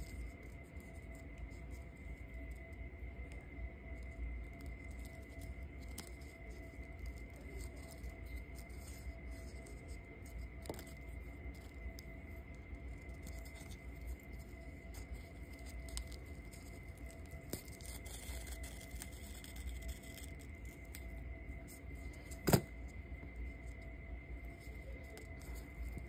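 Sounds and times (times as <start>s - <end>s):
faint high-pitched tone: 0.0s - 26.0s.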